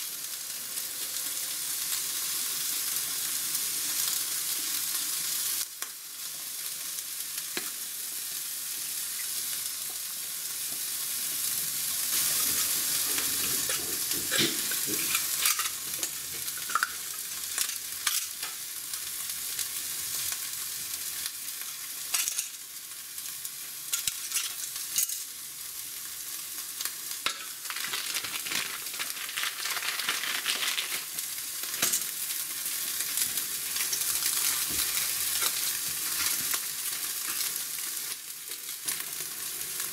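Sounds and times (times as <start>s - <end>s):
steady hiss: 0.0s - 39.9s
plastic crinkling: 27.6s - 31.2s.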